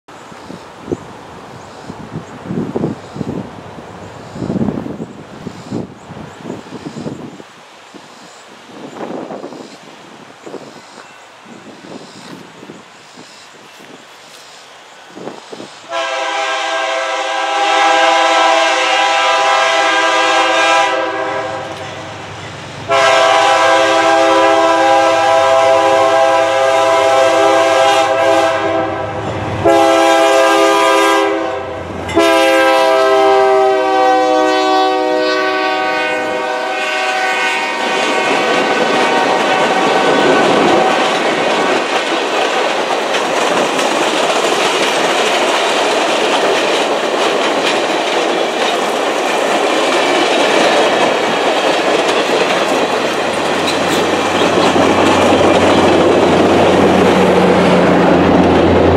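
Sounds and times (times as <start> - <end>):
locomotive air horn blasts: 15.9 - 22.3, 22.9 - 41.2
train wheels clacking on rails: 37.8 - 58.9.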